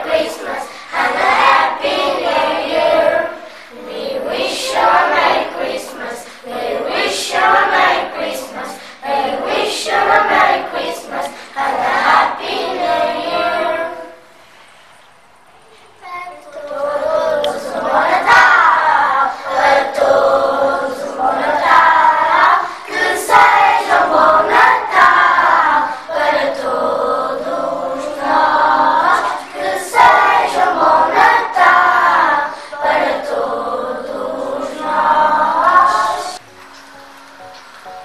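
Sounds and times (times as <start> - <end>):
children singing in a choir: 0.0 - 14.8, 16.4 - 38.0.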